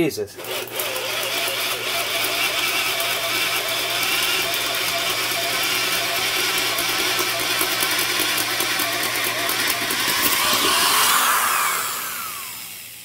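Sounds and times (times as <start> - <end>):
drill boring through wood: 0.4 - 13.0.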